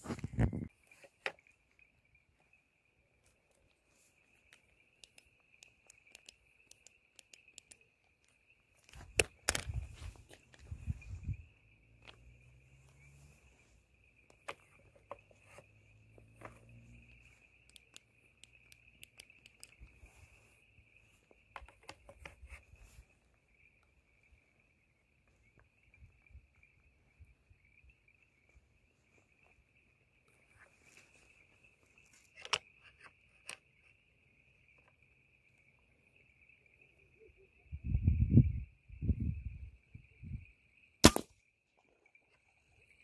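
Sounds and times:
crickets trilling: 0.0 - 43.0
scattered clicks: 4.4 - 10.6, 17.6 - 20.0.

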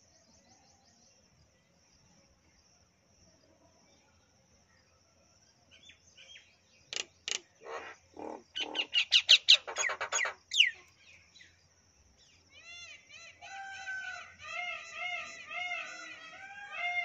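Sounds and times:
faint high insect trill: 0.0 - 17.0
myna calling: 7.3 - 10.8.

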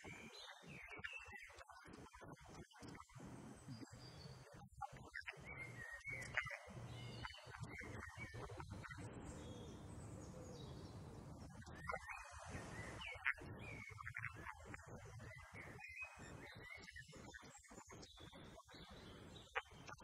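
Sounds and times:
birds chirping and whistling: 5.2 - 10.9, 11.6 - 14.6, 15.2 - 17.3.

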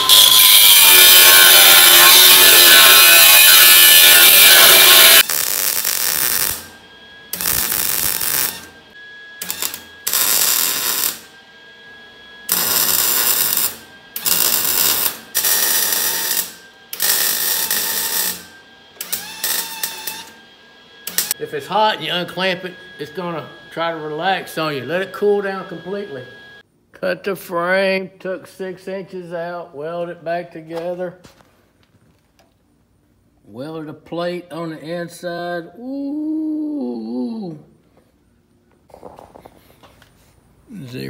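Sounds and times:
angle grinder grinding steel: 0.0 - 6.7
electric arc welding bursts: 0.0 - 6.7, 7.3 - 8.7, 9.4 - 11.3, 12.5 - 20.4.

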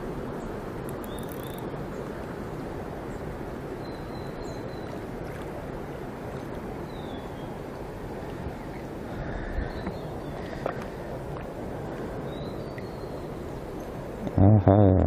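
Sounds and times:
mountain stream rushing: 0.0 - 14.4.

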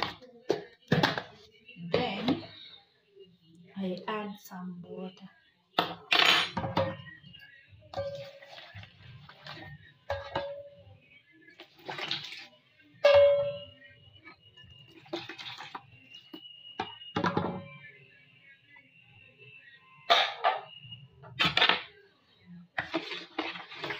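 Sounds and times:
water splashing into bowl: 11.6 - 12.5, 14.9 - 17.0.

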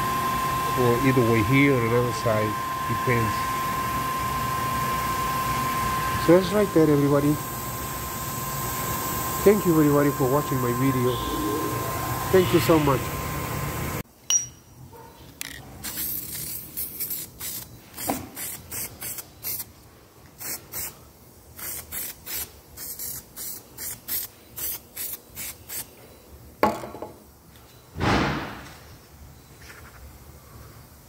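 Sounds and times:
aerosol spray can hissing: 15.8 - 19.7, 20.4 - 21.0, 21.6 - 25.8.

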